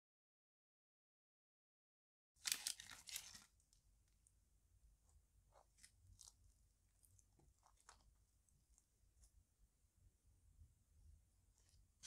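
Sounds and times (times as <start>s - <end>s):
crusty bread crackling: 2.4s - 3.8s, 5.5s - 9.3s.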